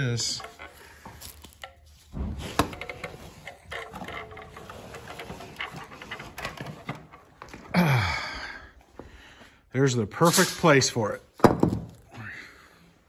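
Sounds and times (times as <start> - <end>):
metal cover and screwdriver rattling: 0.0 - 1.8, 2.4 - 7.7.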